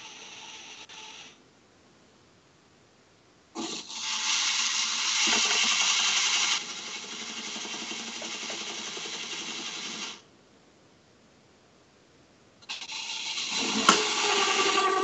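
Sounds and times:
claw machine motors whining: 12.7 - 15.0.

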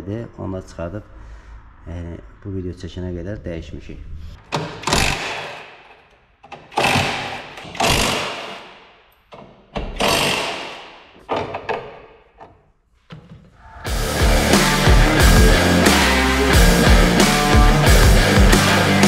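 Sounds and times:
cordless impact wrench bursts: 6.6 - 8.8, 9.9 - 11.0.

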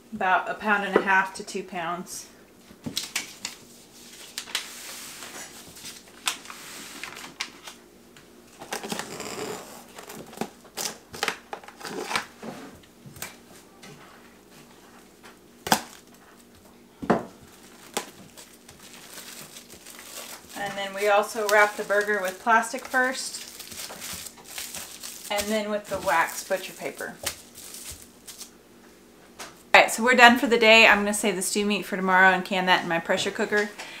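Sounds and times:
cling wrap crinkling: 17.4 - 28.5.

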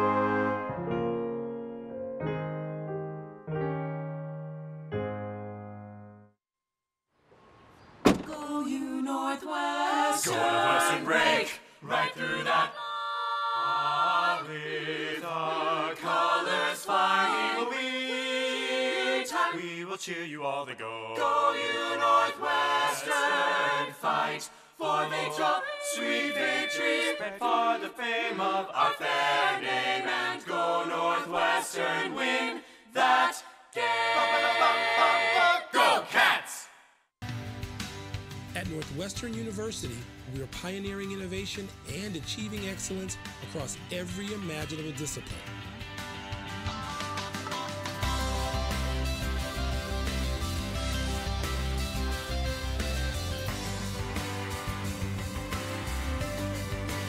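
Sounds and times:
choir singing: 8.3 - 36.7, 47.1 - 51.9.

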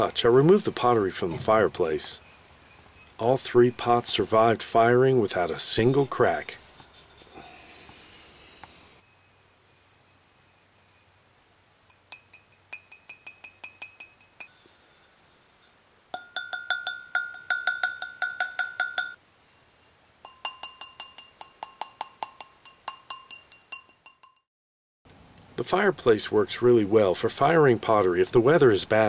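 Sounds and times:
finger tapping ringing clay pots: 11.9 - 14.6, 16.1 - 19.2, 20.2 - 24.4.

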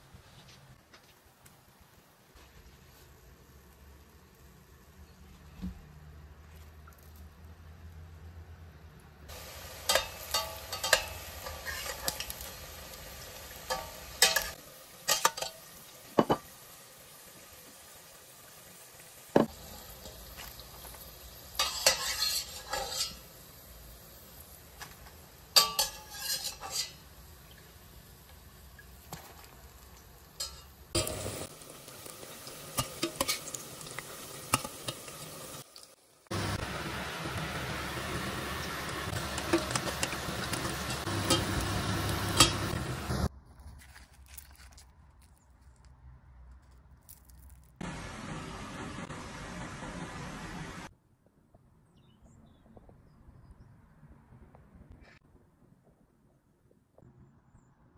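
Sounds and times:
battered food deep-frying: 0.0 - 46.4, 47.1 - 50.9
oil sizzling: 1.2 - 8.1, 9.3 - 43.3, 47.6 - 50.9
spoon scraping frying pan: 9.3 - 16.5, 19.6 - 23.3, 24.8 - 27.2, 30.4 - 31.5, 32.1 - 35.2, 39.1 - 43.3.

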